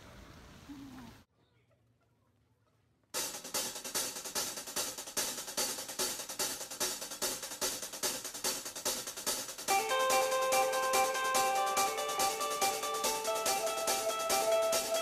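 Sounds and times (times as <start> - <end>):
background music with drum beat: 3.2 - 15.0.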